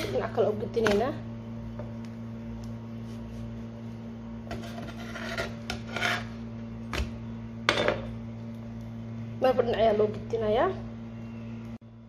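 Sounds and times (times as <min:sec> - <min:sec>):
metal spatula scraping a pan: 0:04.5 - 0:06.4.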